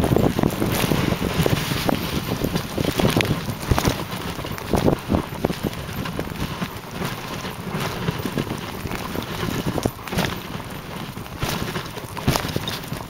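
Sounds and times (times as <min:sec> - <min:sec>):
sled knocking and rattling: 0:00.0 - 0:13.0
sled runners hissing on snow: 0:00.1 - 0:13.0.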